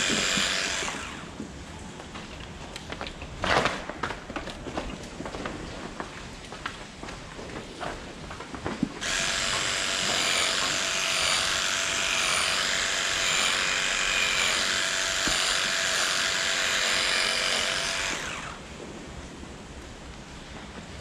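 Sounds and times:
electric clippers buzzing: 0.0s - 1.2s, 9.0s - 18.6s.

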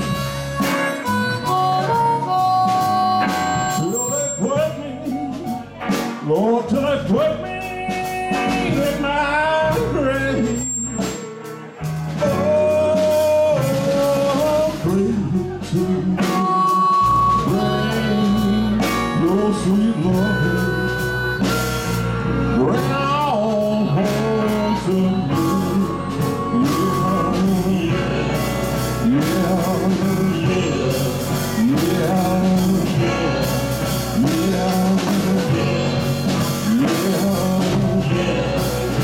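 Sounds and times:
wailing harmonica: 0.0s - 5.8s, 16.2s - 39.0s
blues band playing: 0.0s - 39.0s.

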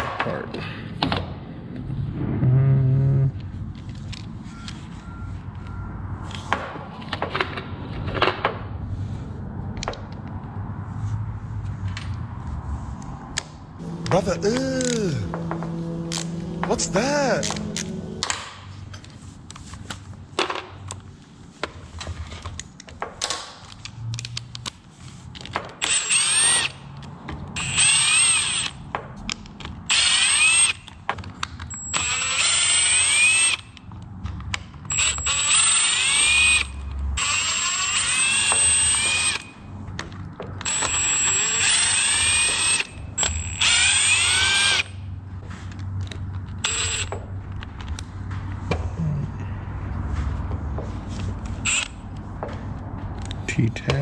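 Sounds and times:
cordless drill motor whine: 13.8s - 18.4s, 31.9s - 33.6s, 34.9s - 39.5s, 40.7s - 44.9s, 46.6s - 47.1s, 51.6s - 52.0s.

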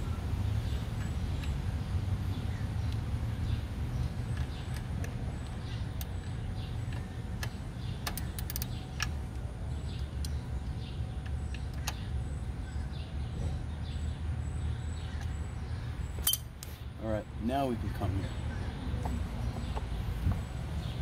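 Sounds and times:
low background rumble: 0.0s - 21.0s
metallic clicks of hand tools: 6.9s - 9.1s.

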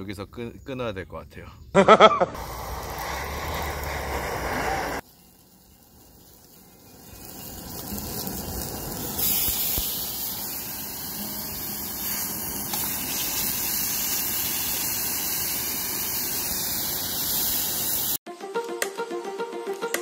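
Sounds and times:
pork sizzling: 2.3s - 18.2s.

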